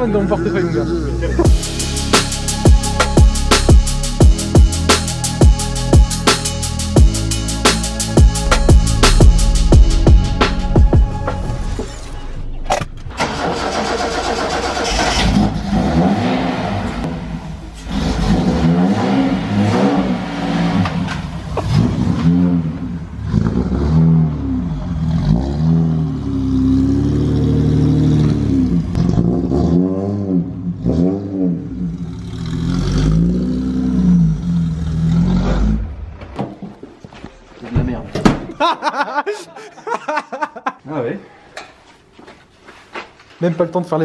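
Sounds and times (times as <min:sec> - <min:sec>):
car engine revving: 0:01.4 - 0:36.4.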